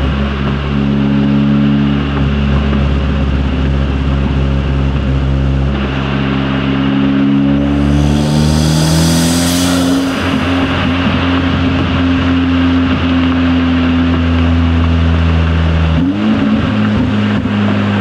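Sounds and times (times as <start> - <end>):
turbocharged car engine running: 5.2 - 11.8
turbo rushing: 7.2 - 11.6.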